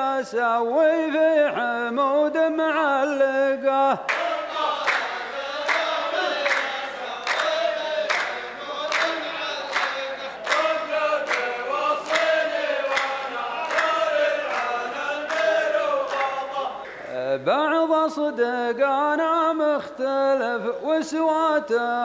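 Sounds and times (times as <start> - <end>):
men chanting in unison: 0.0 - 22.0
hand claps: 4.0 - 17.0.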